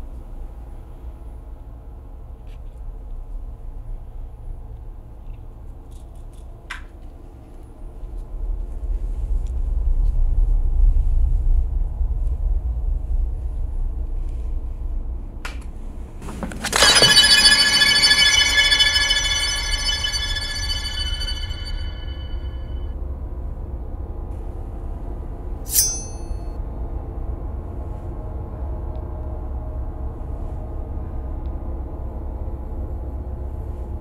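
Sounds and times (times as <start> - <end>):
bright musical stinger: 16.7 - 22.8.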